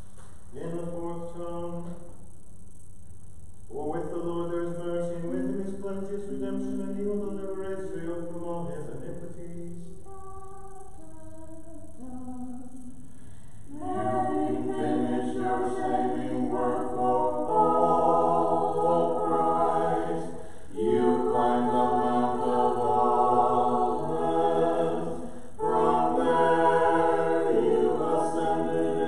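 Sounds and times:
choir singing a cappella: 3.8s - 9.3s, 13.7s - 29.0s.

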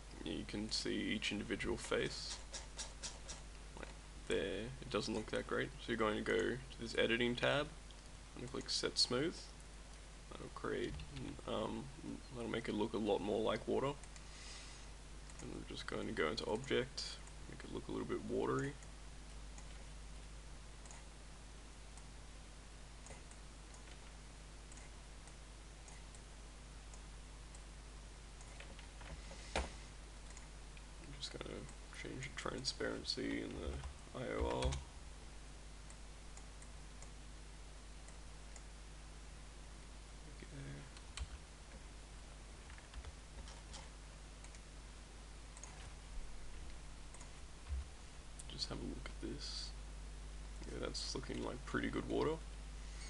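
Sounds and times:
low background hum: 0.0s - 53.0s
computer mouse clicks: 2.3s - 4.0s, 15.3s - 15.6s, 20.8s - 21.1s, 23.0s - 24.1s, 24.7s - 26.3s, 28.4s - 31.8s, 45.5s - 45.9s, 46.7s - 47.4s
mouse and keyboard clicks: 2.3s - 4.0s.

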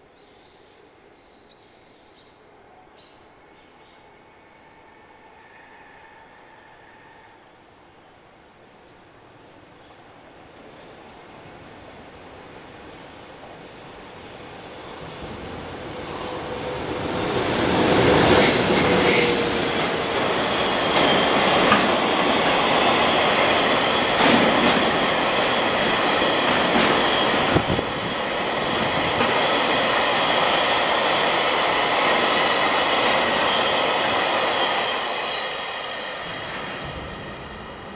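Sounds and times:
train wheels rumbling on rail: 12.8s - 37.9s
rail joint clacks: 18.0s - 30.6s.

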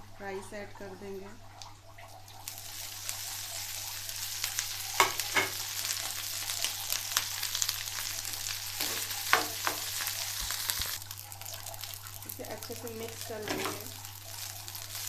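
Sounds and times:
rice sizzling in a pan: 2.4s - 15.0s
steel spoon scraping a pan: 8.8s - 10.1s, 13.4s - 14.0s.

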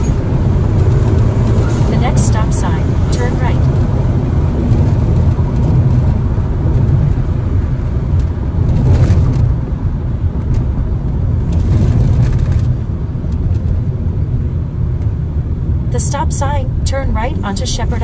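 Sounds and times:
car exhaust drone: 0.0s - 18.0s.

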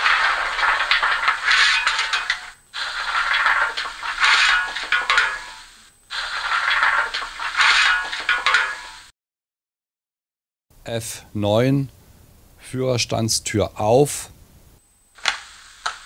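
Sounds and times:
shovel scraping coal: 0.0s - 9.1s.

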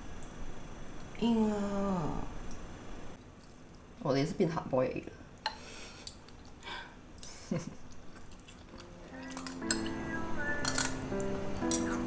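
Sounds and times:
background music with held notes: 8.7s - 12.0s
cutlery clinking on ceramic bowl: 9.3s - 10.0s, 10.6s - 11.0s.

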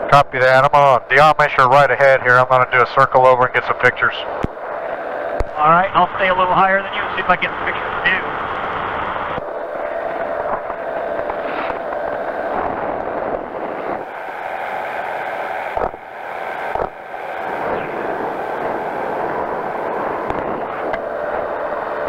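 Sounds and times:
engine and propeller running: 0.0s - 22.0s
wind rushing over microphone: 8.3s - 22.0s.

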